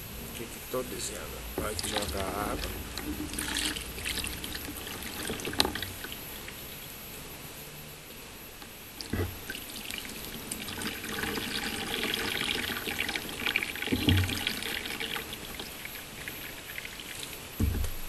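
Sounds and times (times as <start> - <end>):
water pouring and splashing: 1.1 - 6.7, 9.0 - 18.0
dull thumps: 17.6 - 18.0.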